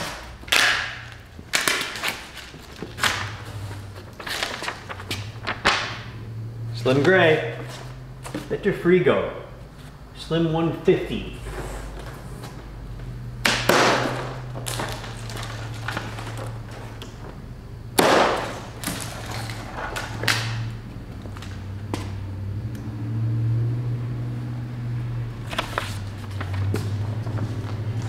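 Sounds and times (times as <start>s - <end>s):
steady low hum: 0.0s - 28.0s
cardboard scraping and rustling: 1.6s - 5.9s, 14.0s - 17.0s, 25.4s - 28.0s.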